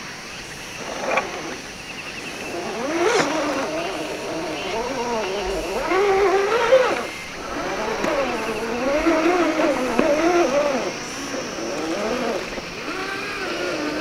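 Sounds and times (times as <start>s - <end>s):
electric motor and gearbox whine: 0.0s - 14.0s.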